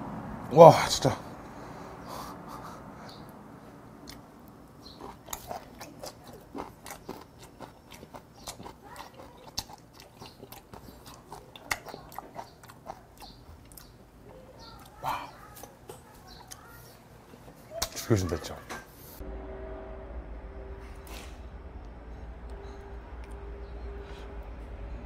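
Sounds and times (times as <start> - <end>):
wet chewing and crunching: 4.0 - 18.0.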